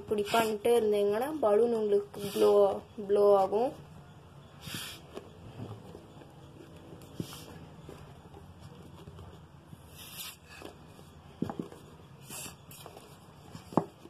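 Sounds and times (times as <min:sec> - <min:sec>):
puffs of air rushing: 0:04.6 - 0:05.0.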